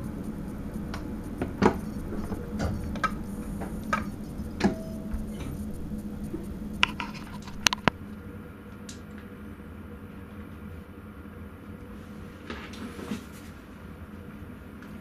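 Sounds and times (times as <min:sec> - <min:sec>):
high hiss: 0:00.0 - 0:08.5
steady electrical hum: 0:00.0 - 0:15.0.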